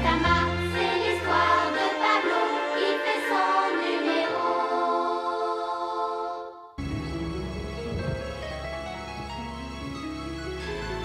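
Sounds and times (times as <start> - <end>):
cartoon theme music with singing: 0.0 - 7.3.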